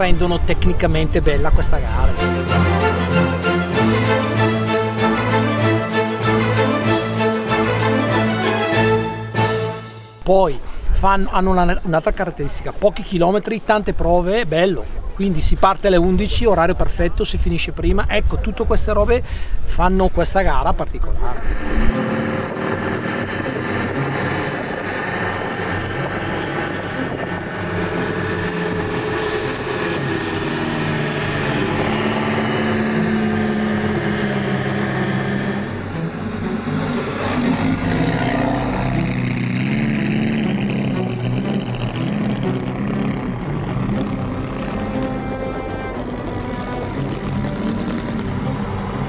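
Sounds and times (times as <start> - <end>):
car engine accelerating: 21.2 - 49.0.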